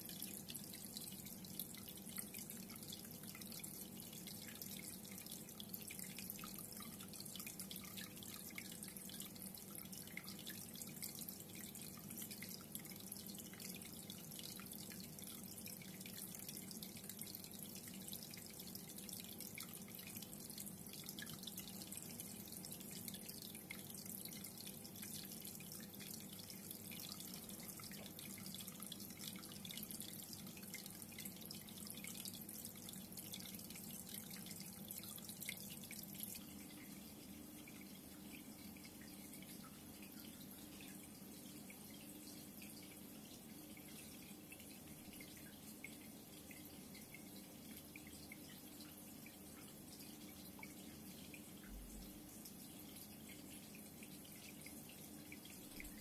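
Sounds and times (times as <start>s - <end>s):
aquarium water trickling: 0.0s - 56.0s.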